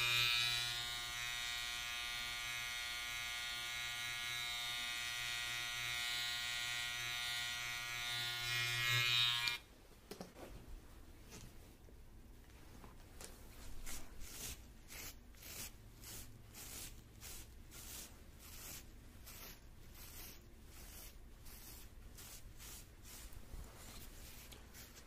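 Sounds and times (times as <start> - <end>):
scratchy brushing strokes: 13.3 - 25.0.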